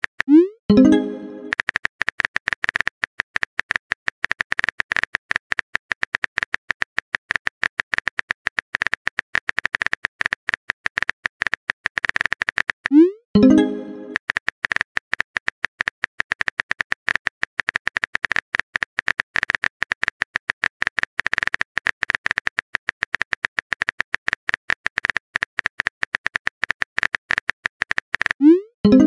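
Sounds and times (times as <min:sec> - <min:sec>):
keyboard typing clicks: 0:00.2 - 0:02.9, 0:08.8 - 0:14.8.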